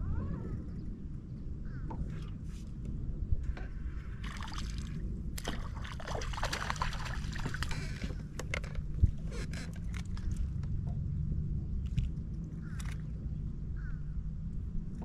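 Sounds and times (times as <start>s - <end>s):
steady low rumble: 0.0s - 15.0s
water splashing against boat: 4.1s - 10.9s.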